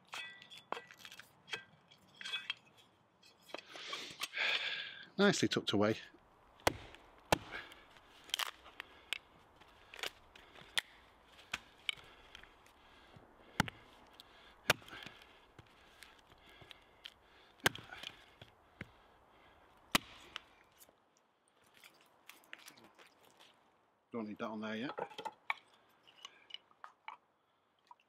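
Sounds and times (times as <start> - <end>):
hatchet chopping wood: 6.6 - 8.6, 10.0 - 12.4, 13.5 - 15.8, 17.6 - 19.0, 19.9 - 20.5.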